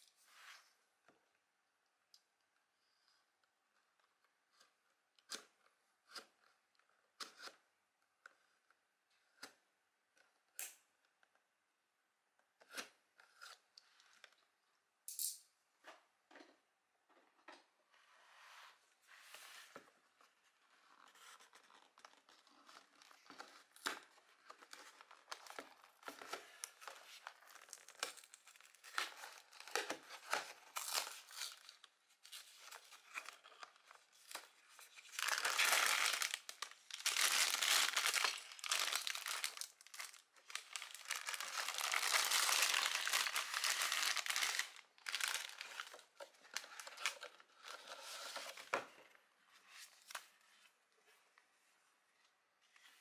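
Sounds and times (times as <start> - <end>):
cardboard crinkling and tearing: 24.4 - 48.8
plastic bags handled: 25.1 - 47.4.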